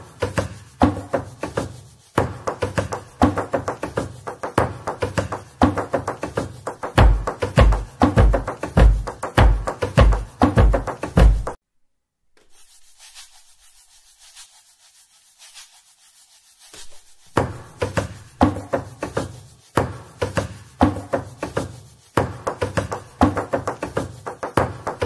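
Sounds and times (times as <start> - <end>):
faint hiss: 0.0 - 4.4, 12.4 - 25.0
percussive background music: 0.0 - 11.6, 17.4 - 25.0.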